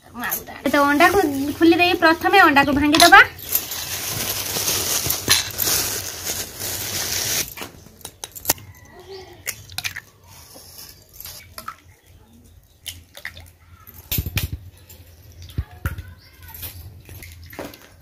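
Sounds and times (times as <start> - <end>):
plastic bag rustling: 0.7 - 7.8.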